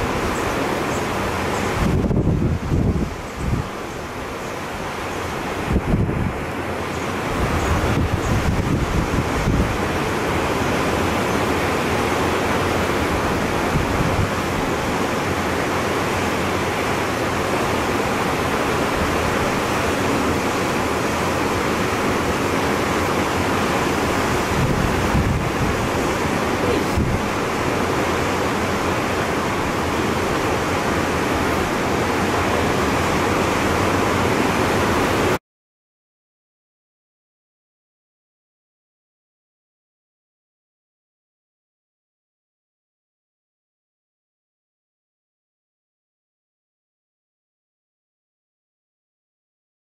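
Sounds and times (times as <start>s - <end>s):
sea and surf rushing: 0.0s - 35.4s
wind buffeting microphone: 0.0s - 35.4s.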